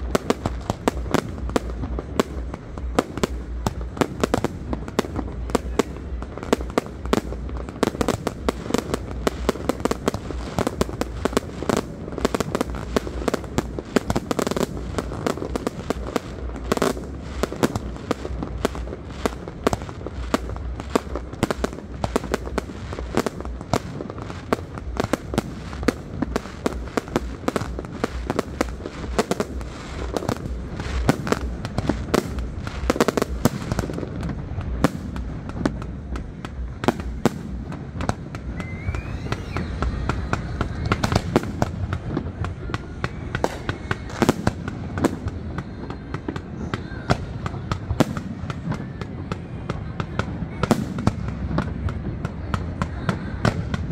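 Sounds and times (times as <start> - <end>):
fireworks bangs and pops: 0.0 - 53.9.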